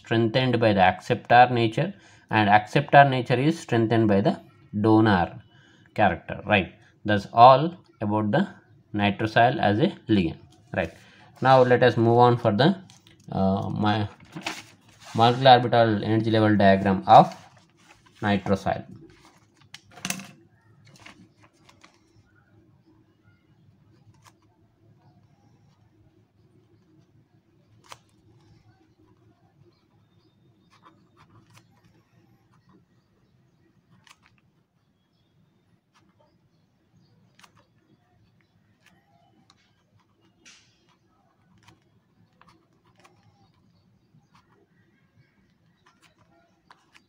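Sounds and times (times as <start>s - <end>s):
notebook scraping: 10.4s - 12.2s, 12.8s - 22.4s, 23.9s - 35.0s, 38.7s - 47.0s
pen scratching on paper: 23.9s - 33.0s, 39.8s - 44.6s.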